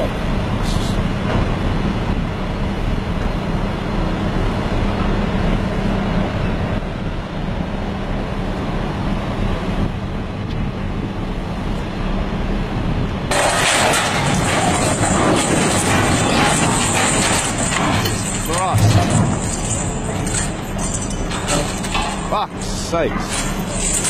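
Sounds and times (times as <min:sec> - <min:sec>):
heavy machine engine humming: 0:00.0 - 0:24.0
harsh machine noise: 0:13.3 - 0:24.0.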